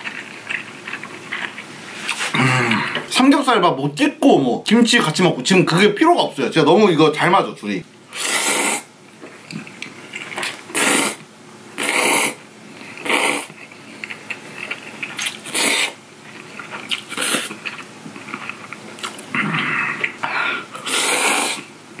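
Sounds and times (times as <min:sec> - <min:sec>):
wet chewing: 0:00.0 - 0:02.3, 0:12.9 - 0:19.3
slurping noodles: 0:00.0 - 0:02.8, 0:08.1 - 0:08.9, 0:10.2 - 0:11.2, 0:11.8 - 0:13.8, 0:14.6 - 0:17.8, 0:20.8 - 0:21.7.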